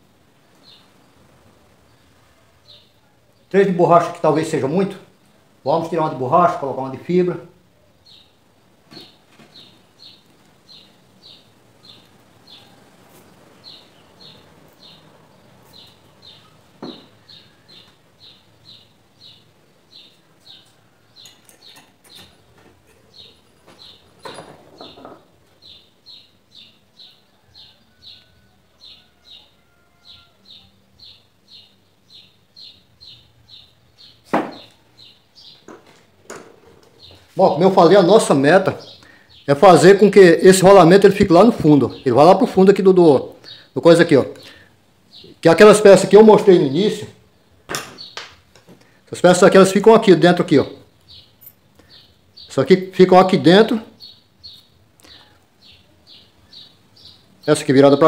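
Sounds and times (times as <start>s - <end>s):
knocks of parts being handled: 16.8s - 17.1s.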